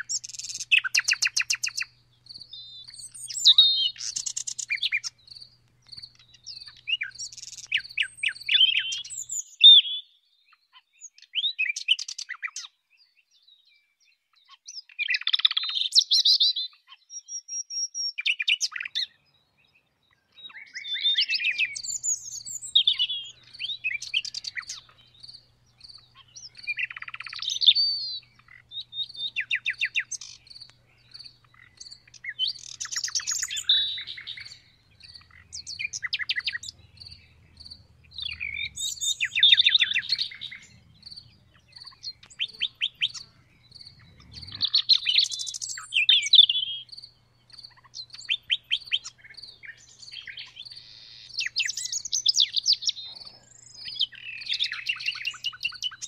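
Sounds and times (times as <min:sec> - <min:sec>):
nightingale singing: 0:00.0 - 0:56.0
crickets chirping: 0:21.6 - 0:51.0.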